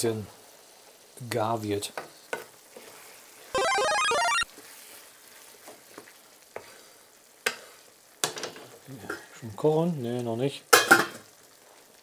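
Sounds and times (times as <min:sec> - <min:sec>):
food sizzling in a frying pan: 0:00.0 - 0:03.5, 0:04.5 - 0:12.0
electronic jingle: 0:03.6 - 0:04.4.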